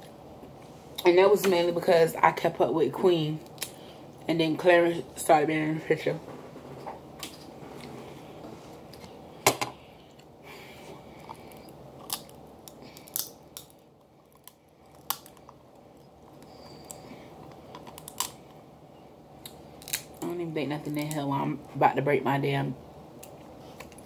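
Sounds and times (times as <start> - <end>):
crab shell cracking: 3.4 - 3.8, 11.2 - 18.6, 19.4 - 20.3.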